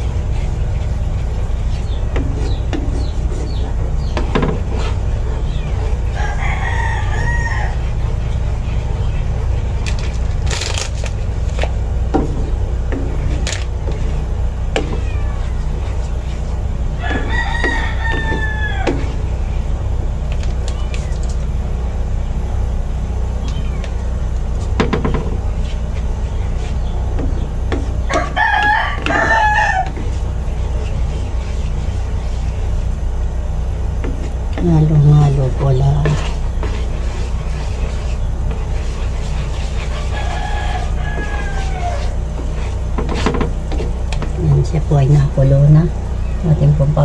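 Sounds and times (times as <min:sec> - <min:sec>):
wooden spatula stirring in pan: 0:00.0 - 0:10.3, 0:11.0 - 0:19.5, 0:23.8 - 0:45.4
steady low hum: 0:00.0 - 0:47.0
rooster crowing: 0:06.0 - 0:08.0, 0:17.0 - 0:19.2, 0:28.1 - 0:30.1, 0:39.8 - 0:42.2.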